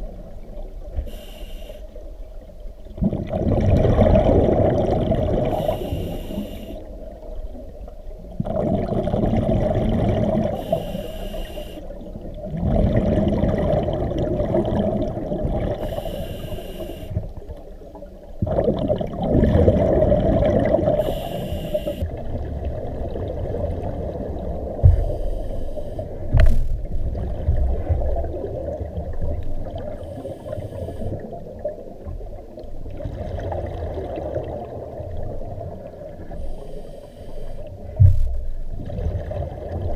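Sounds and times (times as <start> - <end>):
regulator hiss on inhale: 1.0 - 2.0, 5.5 - 6.9, 10.5 - 12.0, 15.8 - 17.3, 21.0 - 22.1, 24.8 - 26.2, 30.0 - 31.2, 36.3 - 37.8
gurgle of exhaled bubbles: 2.9 - 6.2, 6.9 - 10.9, 12.0 - 16.0, 17.2 - 25.2, 26.4 - 30.4, 31.1 - 36.2, 38.7 - 39.9.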